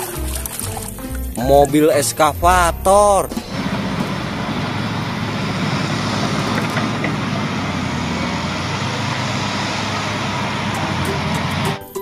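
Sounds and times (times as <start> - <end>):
excavator diesel engine running: 2.4 - 11.9.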